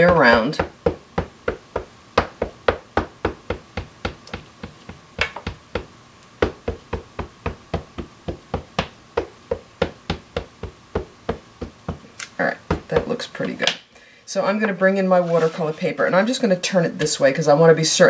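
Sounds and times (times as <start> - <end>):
ink pad tapping rubber stamp: 0.1 - 12.0.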